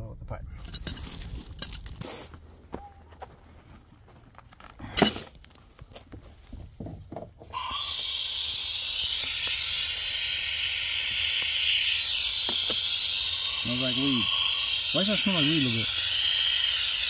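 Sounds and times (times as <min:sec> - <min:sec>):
gas hissing from a valve: 0:07.5 - 0:17.0.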